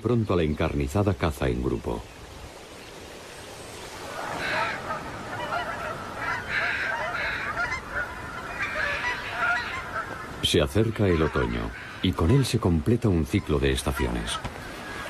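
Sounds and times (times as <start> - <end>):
waterfowl flock calling: 3.9 - 15.0.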